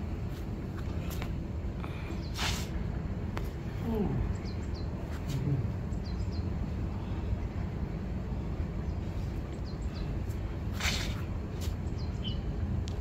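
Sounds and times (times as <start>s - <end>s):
steady low rumble: 0.0s - 13.0s
small bird chirping: 4.3s - 4.9s, 11.9s - 12.5s.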